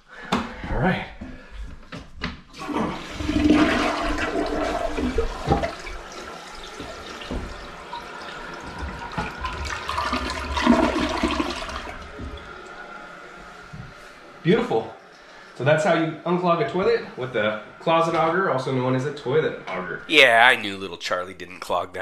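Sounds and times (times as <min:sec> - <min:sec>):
toilet flushing: 0:02.5 - 0:14.1.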